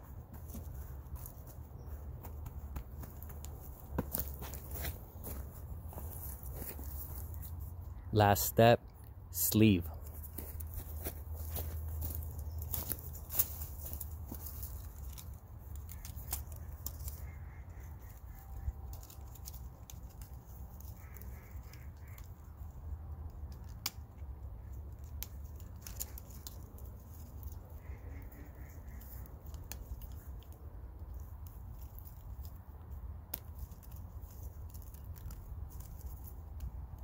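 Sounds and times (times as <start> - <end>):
crows cawing faintly: 0.3 - 8.1, 10.3 - 23.6, 25.8 - 30.5.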